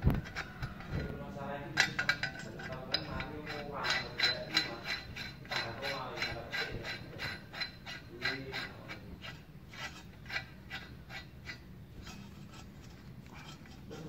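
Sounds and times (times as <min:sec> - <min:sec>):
metal pipe ratchet clicks: 0:01.7 - 0:12.6.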